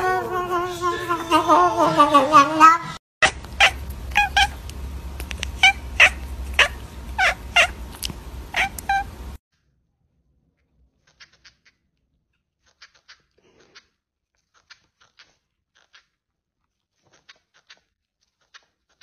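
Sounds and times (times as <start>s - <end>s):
cat wavering cry: 0.0s - 4.6s, 5.6s - 7.8s, 8.5s - 9.1s.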